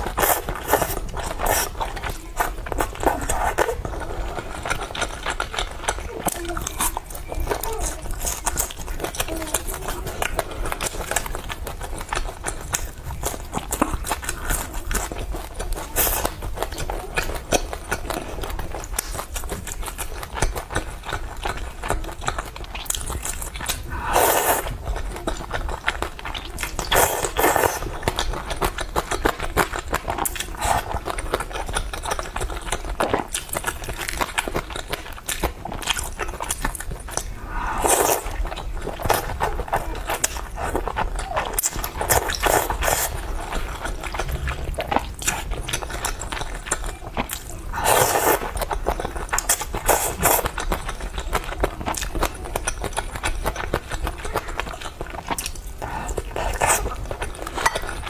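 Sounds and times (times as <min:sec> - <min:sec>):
slurping noodles: 0:00.0 - 0:08.2, 0:23.1 - 0:25.9, 0:26.6 - 0:28.3, 0:37.1 - 0:41.0, 0:41.6 - 0:50.7
chewing with small clicks: 0:00.0 - 0:24.0, 0:24.6 - 0:58.0.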